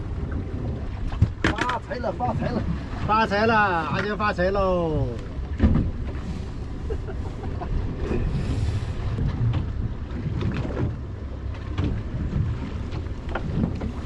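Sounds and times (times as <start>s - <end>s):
water against boat hull: 0.0s - 14.0s
fishing tackle clicks and knocks: 1.2s - 1.9s.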